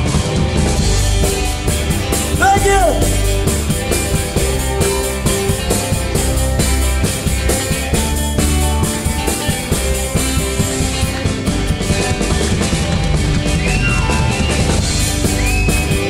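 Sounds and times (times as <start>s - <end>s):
rock and roll band playing: 0.0s - 16.0s.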